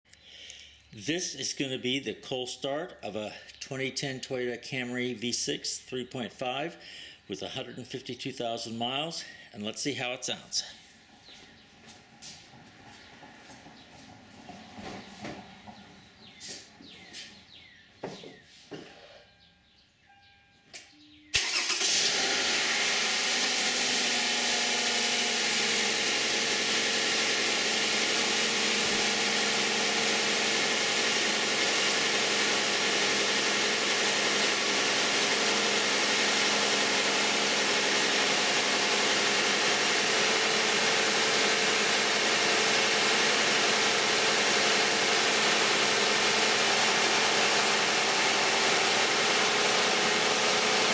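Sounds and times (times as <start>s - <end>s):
car engine starting and idling: 10.6s - 17.7s, 21.0s - 50.9s.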